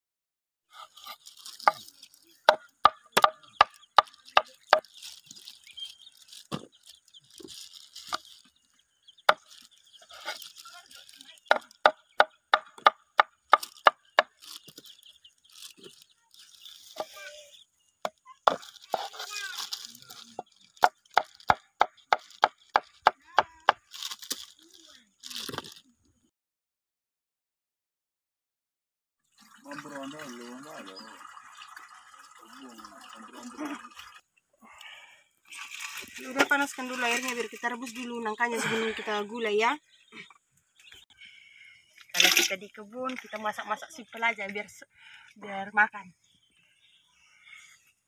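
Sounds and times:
rustling scrapes: 0.7 - 2.4, 9.4 - 11.4, 18.5 - 20.5
knife chopping on wooden board: 2.5 - 4.1.

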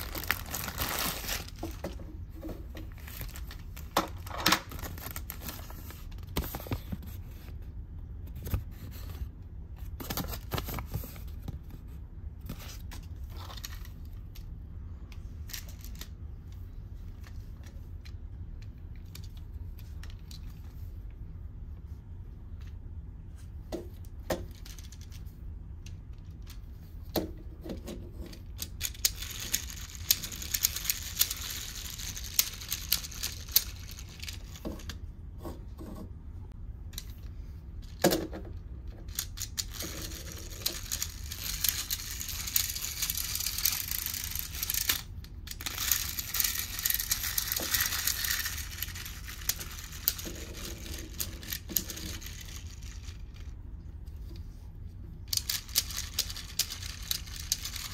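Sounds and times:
plastic toy clicking and rattling: 25.8 - 35.0, 39.0 - 53.5, 55.2 - 57.9.

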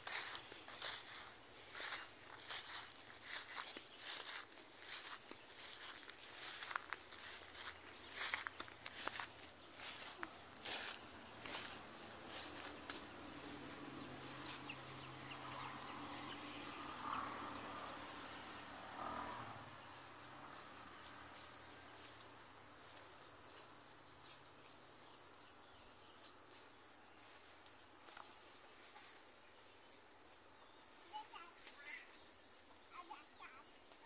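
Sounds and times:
faint clicks and scuffs: 0.0 - 13.1
insects chorus drone: 0.0 - 34.0.

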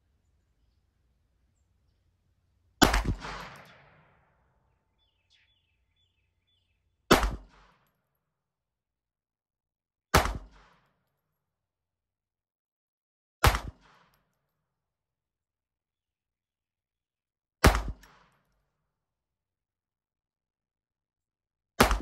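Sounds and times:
pistol shots: 2.8 - 4.5, 7.1 - 7.8, 13.4 - 14.0, 21.8 - 22.0.

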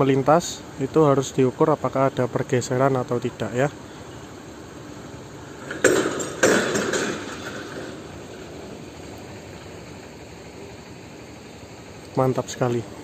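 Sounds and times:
metal clanking on metal: 5.5 - 8.7.

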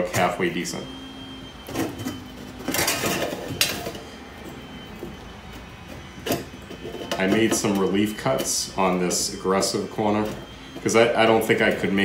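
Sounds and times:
metal scraping and clinking: 1.7 - 4.1.

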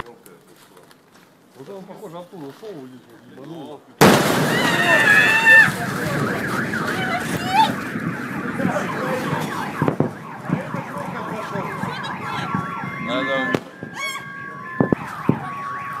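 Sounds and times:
car alarms wailing and beeping: 4.8 - 16.0.

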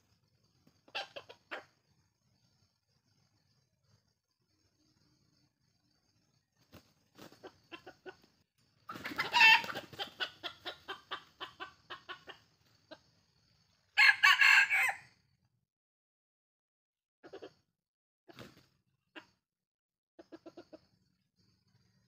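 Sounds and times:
rapid clucks: 0.5 - 1.9, 6.6 - 13.2, 18.3 - 19.4, 20.2 - 21.0
rooster squawking: 8.9 - 10.9
rooster crowing: 9.2 - 9.8, 14.0 - 15.2.

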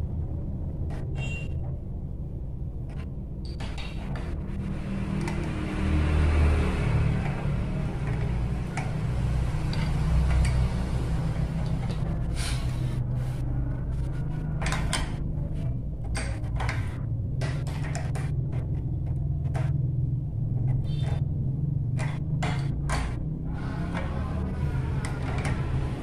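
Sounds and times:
steady low rumble: 0.0 - 3.4, 7.1 - 23.8.

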